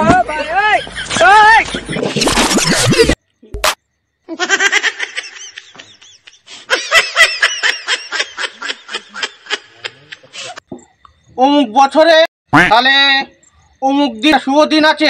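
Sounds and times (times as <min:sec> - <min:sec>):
person laughing: 0:01.0 - 0:03.2, 0:04.3 - 0:10.6.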